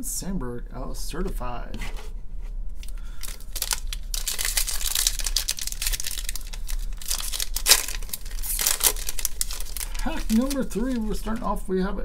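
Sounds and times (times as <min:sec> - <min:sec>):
foil wrapper crinkling: 0:02.8 - 0:11.5.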